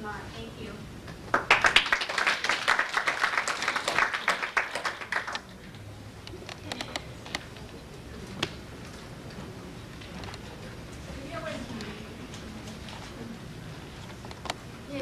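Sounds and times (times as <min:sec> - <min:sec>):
scattered claps: 0:01.1 - 0:05.5
audience applauding: 0:01.3 - 0:05.6.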